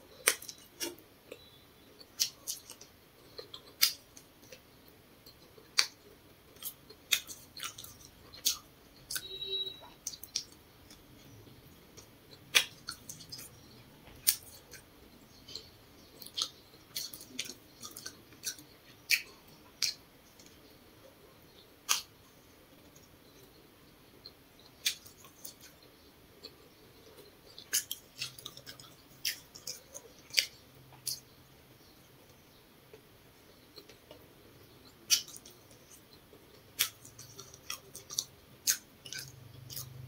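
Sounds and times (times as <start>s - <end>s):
chewing crunchy food: 0.1s - 40.0s
wet mouth clicks: 0.2s - 4.6s, 12.0s - 20.5s, 21.9s - 22.1s, 35.1s - 40.0s.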